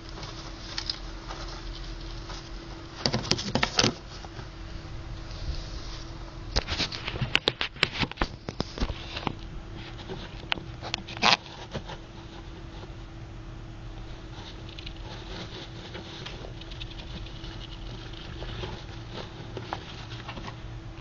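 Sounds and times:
steady low hum: 0.0 - 21.0
gerbil scratching and clicking: 6.6 - 12.5, 14.3 - 20.6.

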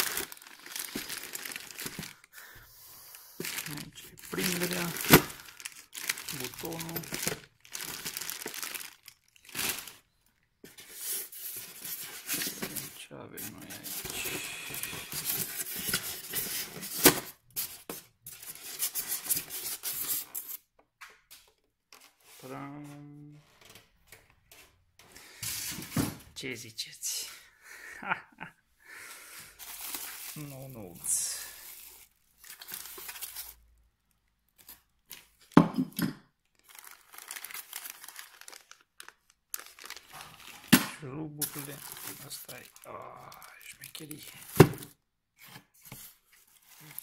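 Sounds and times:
packaging rustling and clattering: 0.0 - 2.3, 3.4 - 20.6, 29.6 - 33.6, 34.5 - 35.6, 36.5 - 40.8, 41.4 - 47.0.

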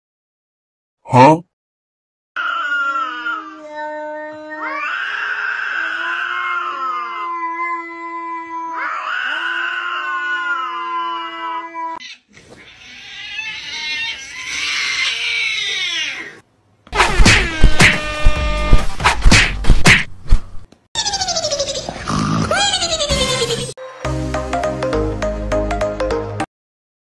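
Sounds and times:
cat yowling: 2.4 - 16.4
loud music with sharp beats: 17.0 - 20.1.

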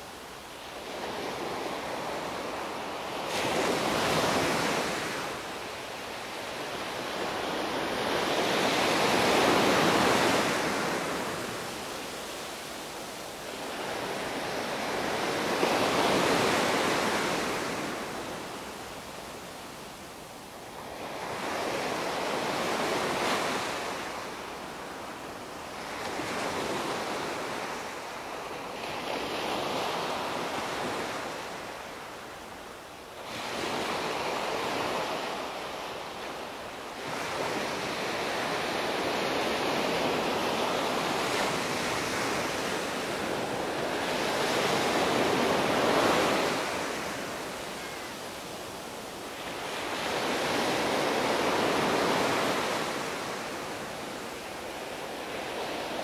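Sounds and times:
small waves breaking on a beach: 0.0 - 56.0.

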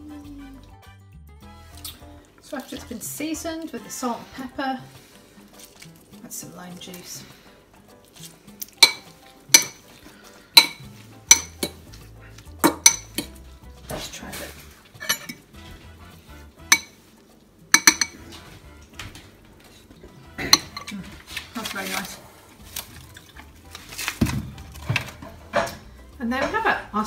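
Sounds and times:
fork clinking on ceramic bowl: 8.8 - 9.8, 10.6 - 11.8, 12.7 - 13.4, 15.0 - 15.4, 16.7 - 17.0, 17.7 - 18.2.

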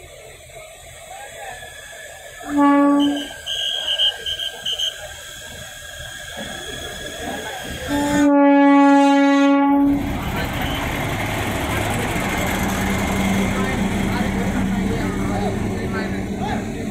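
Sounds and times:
locomotive horn blasts: 2.4 - 4.9, 7.9 - 10.0.

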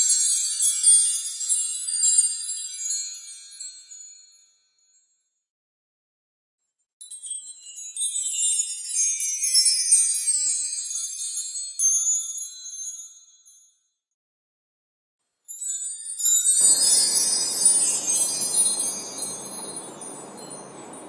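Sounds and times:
tinkling metallic chimes: 15.5 - 21.0.

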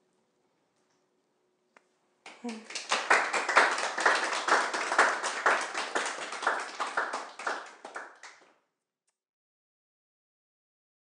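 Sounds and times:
audience clapping: 2.3 - 8.6.

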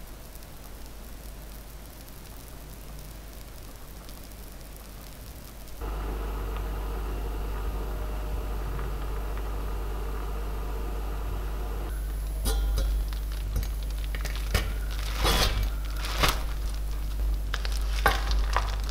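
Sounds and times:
faint hiss: 0.0 - 18.2
water boiling and bubbling: 0.1 - 18.9.

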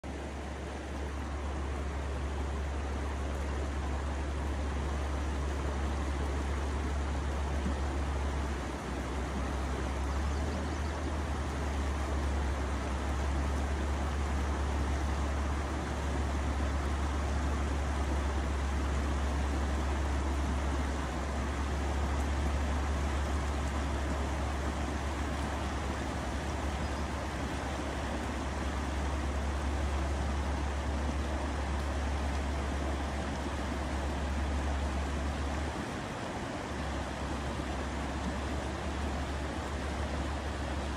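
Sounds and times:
deep steady rumble: 0.0 - 40.9
river rushing over rocks: 0.0 - 40.9.

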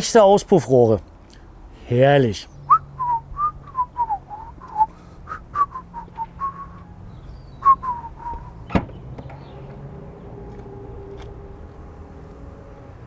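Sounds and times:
man whistling a tune: 2.7 - 6.8, 7.6 - 8.6.

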